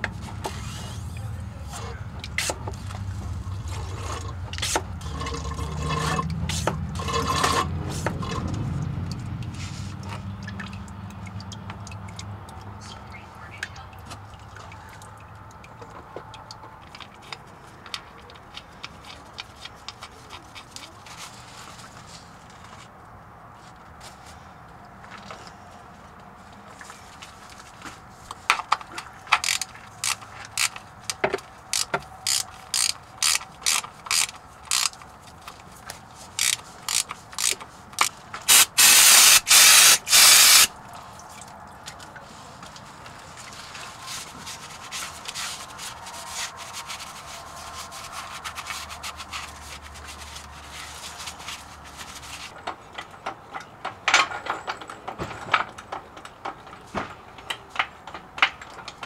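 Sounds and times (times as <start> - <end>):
fluid draining: 2.9 - 12.8, 14.0 - 17.2
ratchet wrench clicking: 29.4 - 30.8, 31.7 - 35.0, 36.4 - 40.7.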